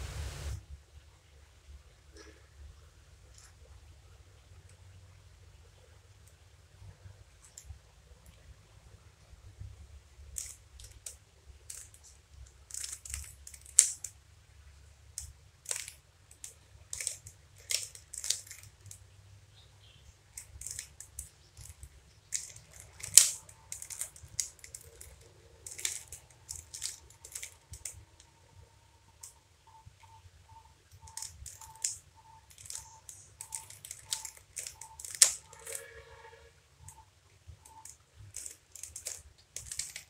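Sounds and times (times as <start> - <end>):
plastic puzzle cube clicking: 10.3 - 14.2, 15.1 - 19.0, 20.3 - 28.3, 30.8 - 35.9, 36.8 - 40.0
sharp plastic snaps: 10.3 - 14.2, 15.1 - 19.0, 20.3 - 28.3, 30.9 - 35.8, 37.6 - 40.0.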